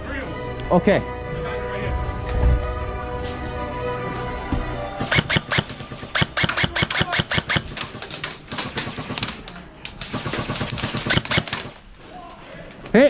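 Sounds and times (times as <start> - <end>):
airsoft guns firing: 5.0 - 11.8.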